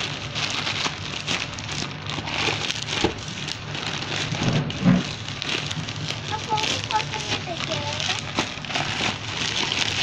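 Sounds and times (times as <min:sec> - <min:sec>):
plastic mailer bag crinkling: 0:00.0 - 0:10.0.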